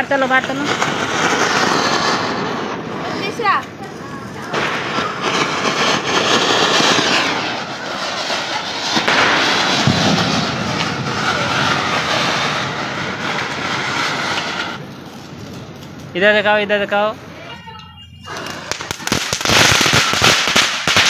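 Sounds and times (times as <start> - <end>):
fireworks spraying sparks hissing: 0.0 - 21.0
sharp crack: 0.3 - 16.3.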